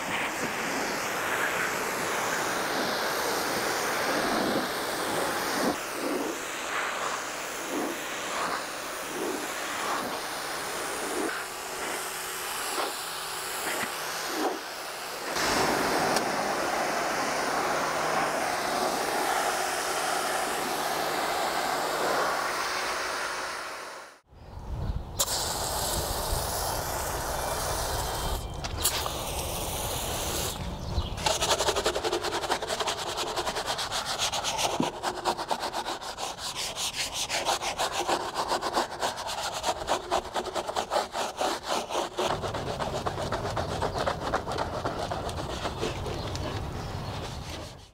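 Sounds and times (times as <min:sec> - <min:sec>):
pressure washer jet hissing: 0:00.0 - 0:24.1, 0:25.2 - 0:30.6.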